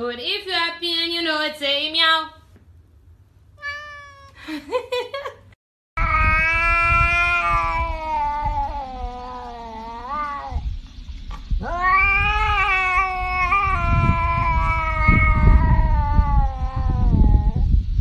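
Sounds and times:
cat yowling: 3.6 - 4.4, 6.0 - 10.7, 11.6 - 17.6.

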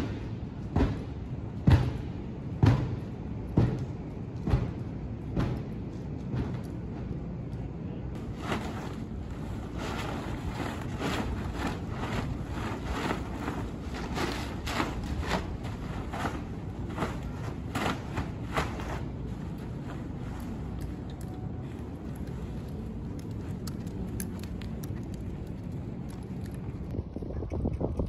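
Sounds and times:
steady low rumble: 0.0 - 28.0
plastic tarp crackling and flapping: 8.2 - 22.6.

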